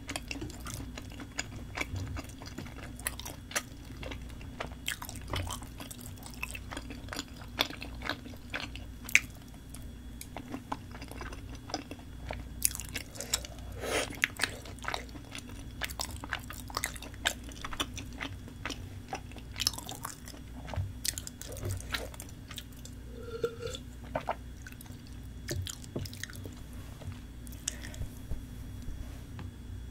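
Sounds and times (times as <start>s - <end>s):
person chewing and biting: 0.0s - 9.3s, 10.2s - 24.8s.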